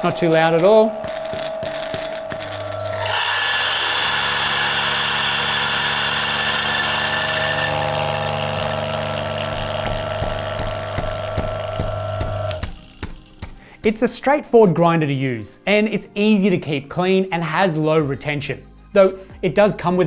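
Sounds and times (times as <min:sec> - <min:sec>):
coffee beans being ground: 0:00.0 - 0:13.6
grinder motor hum: 0:00.0 - 0:13.6.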